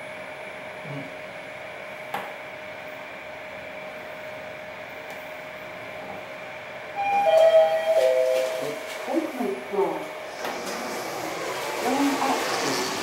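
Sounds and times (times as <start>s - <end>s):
elevator hum with faint whine: 0.0s - 13.0s
louder tone: 7.0s - 8.8s.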